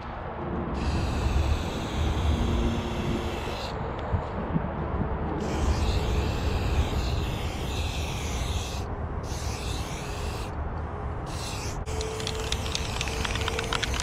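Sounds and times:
spray-paint can hissing: 0:11.3 - 0:14.0.

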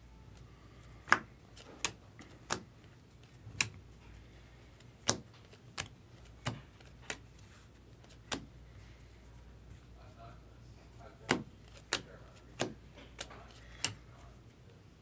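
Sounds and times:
cards snapping against a stack: 0:01.0 - 0:03.8, 0:04.8 - 0:07.3, 0:08.0 - 0:08.5, 0:11.2 - 0:14.0.

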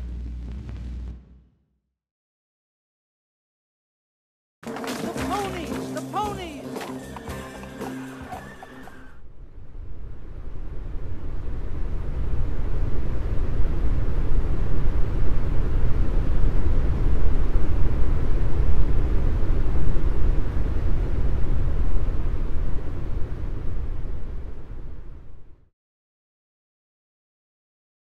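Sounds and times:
deep rumble: 0:00.0 - 0:01.7, 0:08.5 - 0:25.7.

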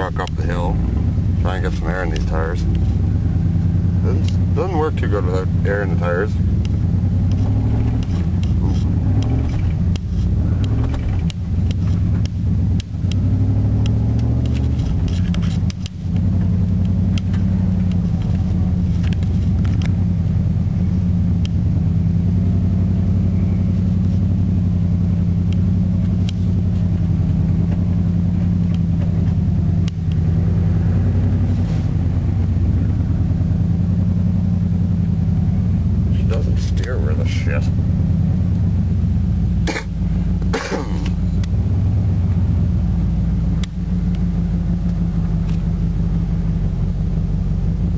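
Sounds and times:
knocks and rattles from bumpy ride: 0:00.0 - 0:20.1
truck engine running under load: 0:00.0 - 0:47.9.

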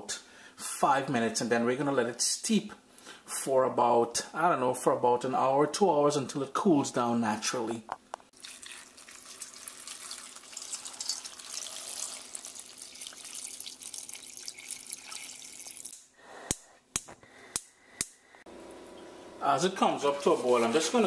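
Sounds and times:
water pouring into a saucepan: 0:08.4 - 0:16.0.

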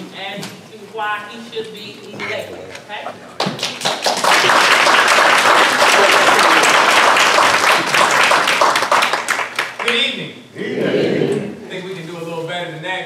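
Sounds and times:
audience applauding: 0:03.4 - 0:10.1.

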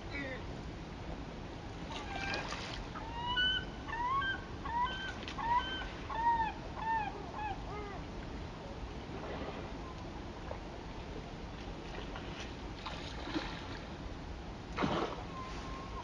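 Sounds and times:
waterbird calling: 0:01.9 - 0:08.1, 0:15.1 - 0:16.0.

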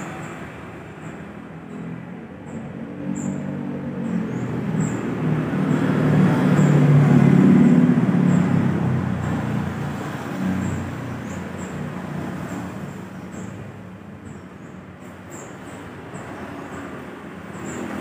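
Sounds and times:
steady traffic hum: 0:00.0 - 0:18.0
vehicle passing: 0:02.8 - 0:13.9.

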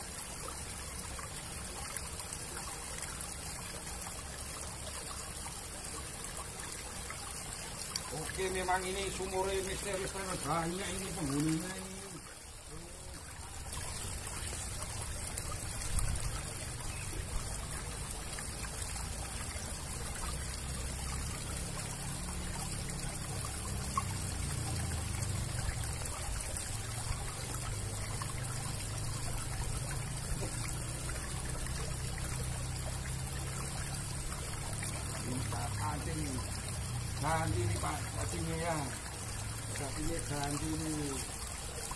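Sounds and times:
water running through culvert: 0:00.0 - 0:41.9.

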